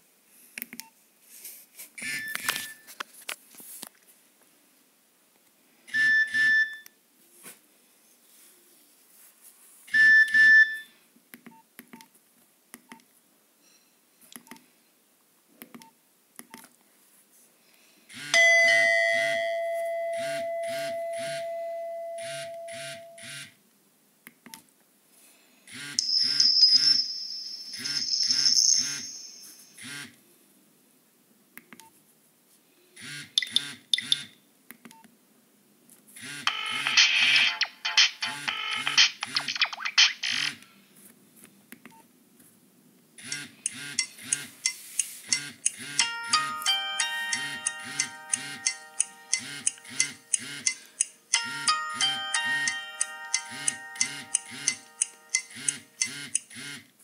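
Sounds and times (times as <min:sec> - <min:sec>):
phone alert tones: 0:18.4 - 0:23.4, 0:25.8 - 0:29.8, 0:36.5 - 0:39.7, 0:45.3 - 0:56.3.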